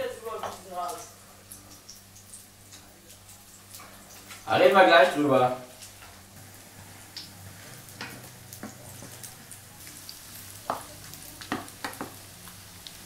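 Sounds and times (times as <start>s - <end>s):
meatballs sizzling in oil: 0.0s - 13.0s.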